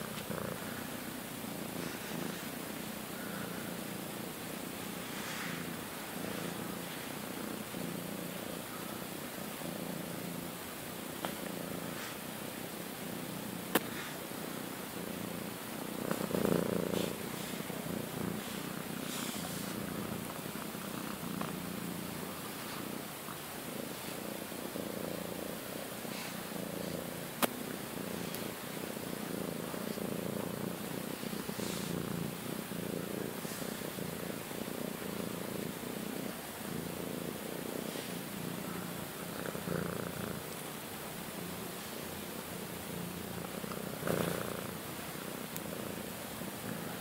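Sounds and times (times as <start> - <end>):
cat purring: 0.0 - 47.0
hand brushing fur: 5.0 - 7.2, 16.8 - 20.3, 31.0 - 31.9.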